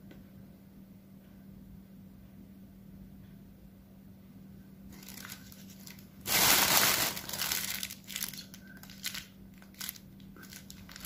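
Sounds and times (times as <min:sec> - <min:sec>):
food packaging crinkling: 0:04.9 - 0:11.0.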